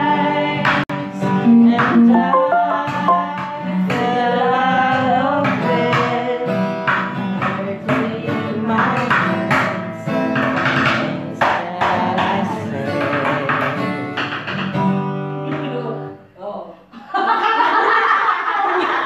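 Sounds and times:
person singing: 0:00.0 - 0:06.4, 0:10.7 - 0:13.8
acoustic guitar strumming: 0:01.1 - 0:08.0, 0:09.0 - 0:15.4.

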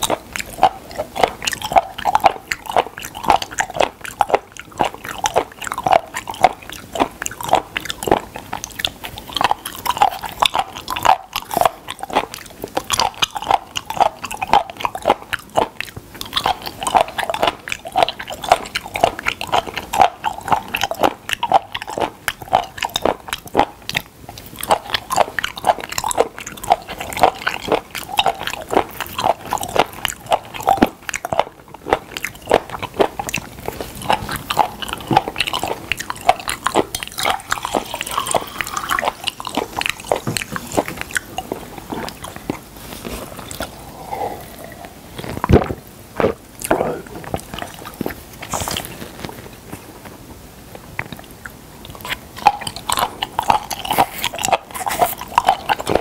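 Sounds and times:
crisp chewing clicks: 0:00.0 - 0:43.8, 0:50.7 - 0:56.0.

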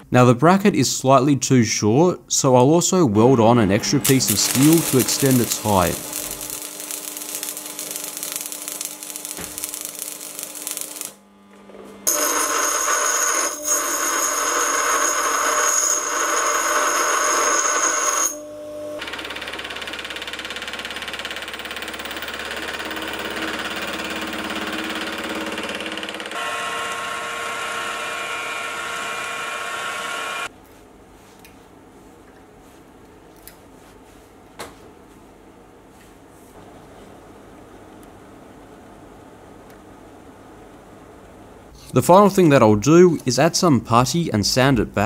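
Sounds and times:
milling machine cutting steel: 0:03.7 - 0:11.2, 0:21.6 - 0:30.5
power tool high whine: 0:03.7 - 0:11.3, 0:12.0 - 0:19.2, 0:22.8 - 0:30.5
drill boring into metal: 0:03.9 - 0:11.2, 0:12.1 - 0:18.4, 0:19.0 - 0:30.5
arc welding crackle: 0:04.0 - 0:11.3.

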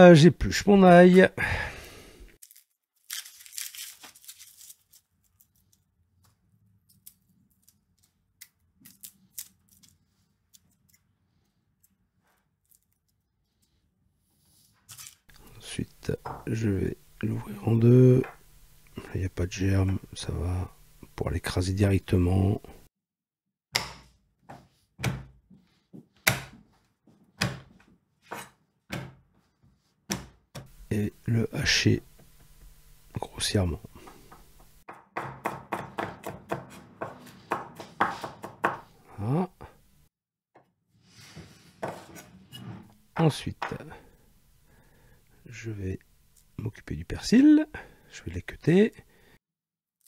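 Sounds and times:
knife peeling garlic skin: 0:02.4 - 0:05.7, 0:08.4 - 0:11.0
low steady hum: 0:30.7 - 0:34.8.

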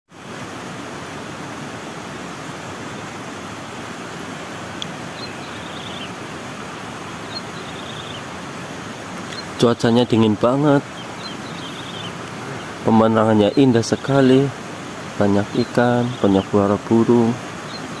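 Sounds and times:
stream flowing: 0:00.1 - 0:18.0
faint high bird chirps: 0:05.1 - 0:06.2, 0:07.2 - 0:08.3, 0:09.2 - 0:09.6, 0:10.7 - 0:14.5, 0:15.4 - 0:18.0.

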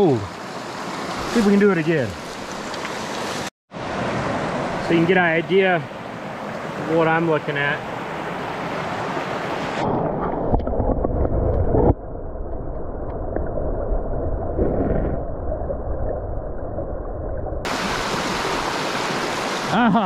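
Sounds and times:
stream running over rocks: 0:00.0 - 0:09.8, 0:17.6 - 0:20.0
muffled underwater rush: 0:09.4 - 0:19.8.

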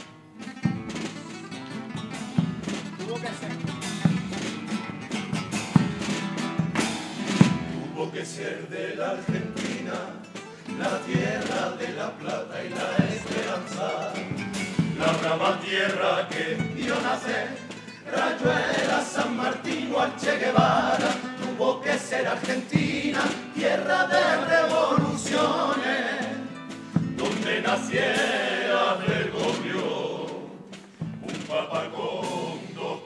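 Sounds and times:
acoustic guitar: 0:00.0 - 0:33.0
male choir singing: 0:07.6 - 0:33.0.

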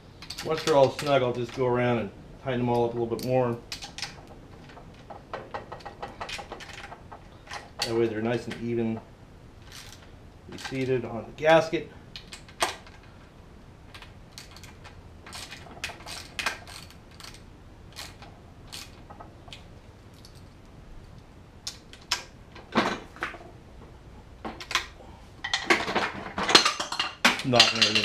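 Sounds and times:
hand tools clicking on metal: 0:14.0 - 0:20.4, 0:26.5 - 0:28.0.

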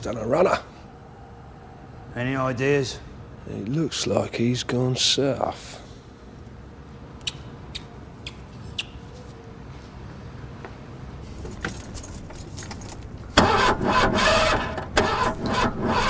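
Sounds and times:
car starter cranking: 0:11.8 - 0:16.0.

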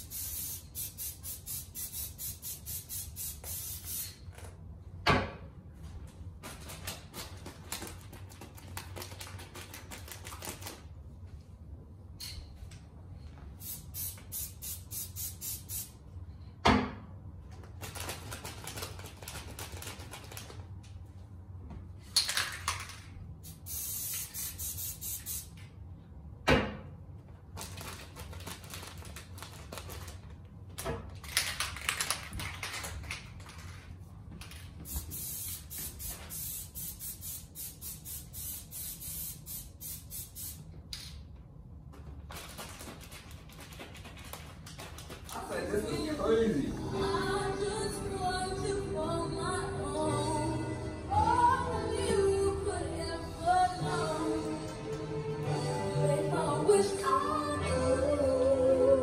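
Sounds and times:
spray bottle hissing: 0:00.0 - 0:04.2, 0:13.6 - 0:16.0, 0:23.4 - 0:25.5, 0:34.9 - 0:40.6.

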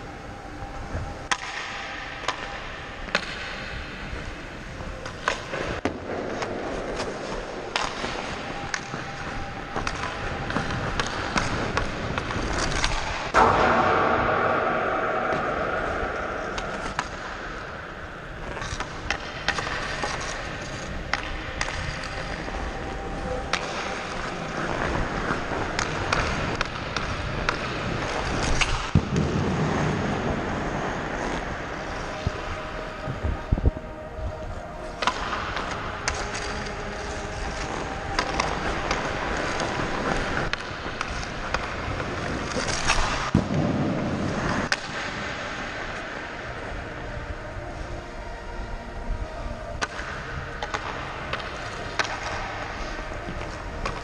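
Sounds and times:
skate blades scraping on ice: 0:00.0 - 0:54.0
stick and puck clicks: 0:00.8 - 0:04.3, 0:05.0 - 0:32.6, 0:34.4 - 0:46.8, 0:49.8 - 0:54.0
loud hit: 0:13.3 - 0:17.9.

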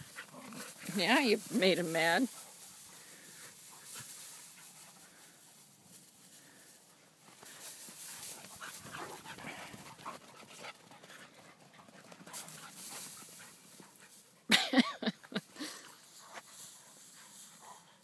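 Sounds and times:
rustling through hay: 0:00.0 - 0:10.0, 0:12.3 - 0:14.2, 0:15.8 - 0:17.9
dogs panting: 0:00.0 - 0:14.5, 0:15.2 - 0:18.0.

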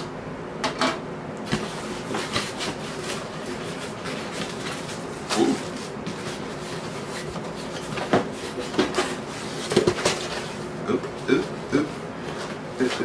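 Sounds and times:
cardboard and plastic rustling: 0:01.5 - 0:10.6.

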